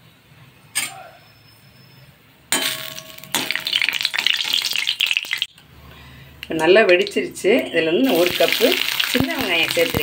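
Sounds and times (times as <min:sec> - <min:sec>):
spices crackling in hot oil: 0:02.7 - 0:05.6, 0:06.4 - 0:10.0.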